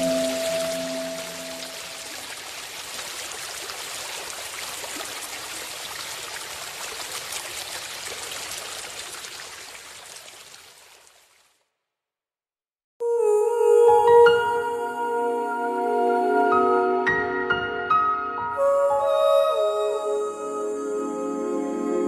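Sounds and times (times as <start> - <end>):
held synth notes: 0.0 - 1.9
stream water trickling: 0.0 - 11.7.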